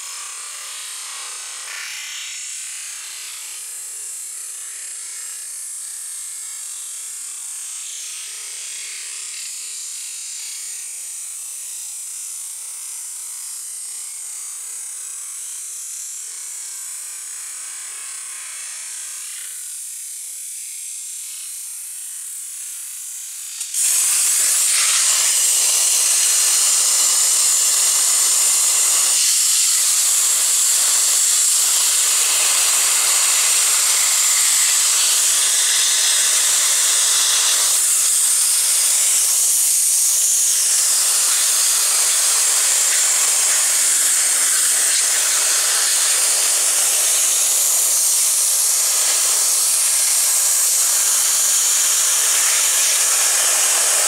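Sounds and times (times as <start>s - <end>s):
pressure washer jet hissing: 23.6s - 54.0s.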